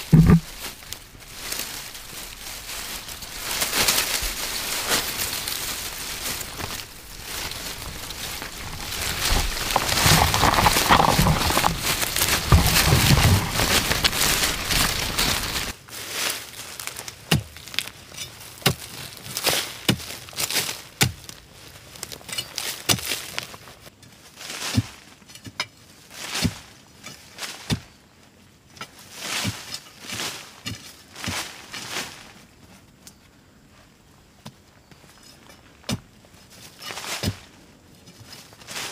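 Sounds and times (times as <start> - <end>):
stick knocking into earth: 0.0 - 0.6, 6.6 - 15.7
dry leaves rustling: 0.0 - 25.2, 29.0 - 32.9, 36.3 - 38.9.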